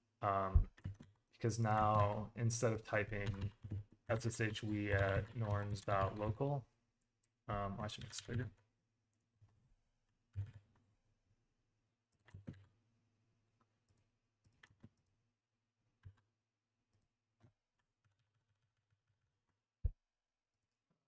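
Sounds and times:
computer keyboard typing: 0.6s - 6.5s, 7.8s - 8.6s, 10.3s - 10.8s, 12.2s - 12.7s, 13.8s - 15.2s, 16.0s - 16.3s, 16.9s - 19.3s.

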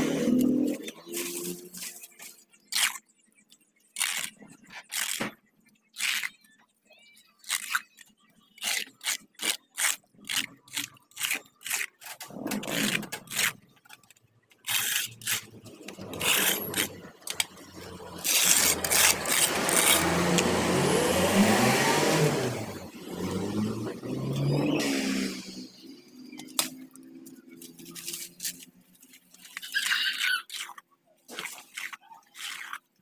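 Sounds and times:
vehicle engine revving: 0.0s - 1.8s, 15.6s - 27.9s
hoe scraping mud on concrete: 10.4s - 13.6s, 14.6s - 22.6s.

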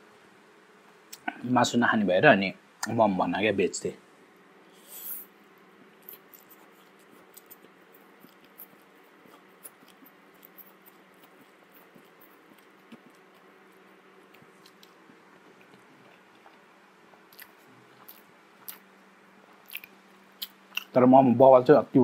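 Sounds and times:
steady low hum: 0.0s - 22.0s
wet mouth clicks: 14.2s - 18.9s, 19.5s - 21.0s.

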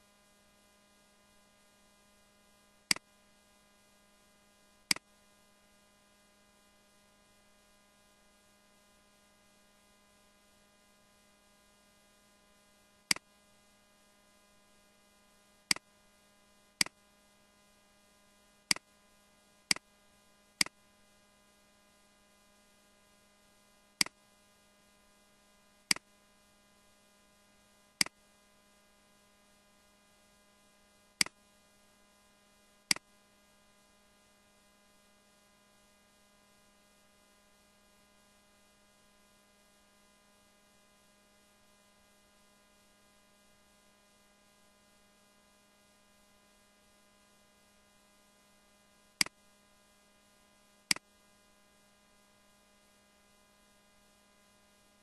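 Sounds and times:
steady electrical hum: 0.0s - 55.0s
computer mouse clicks: 13.1s - 13.3s, 31.2s - 31.4s.

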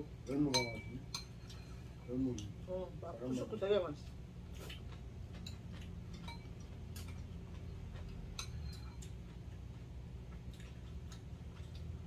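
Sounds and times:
utensils clinking on bowls: 0.2s - 2.5s, 5.4s - 7.3s, 8.0s - 9.2s.

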